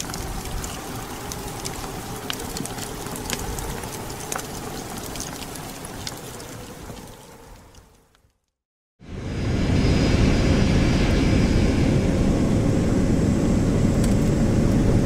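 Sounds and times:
wind rumbling: 0.0 - 8.4, 9.0 - 15.0
wood fire crackling: 0.0 - 8.6.

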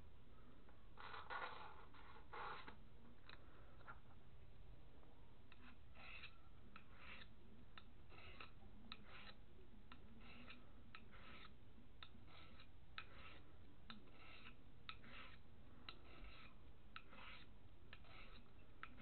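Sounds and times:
knife scraping on sharpener: 1.0 - 2.8, 5.5 - 19.0
blade clicking on sharpener: 5.5 - 19.0.

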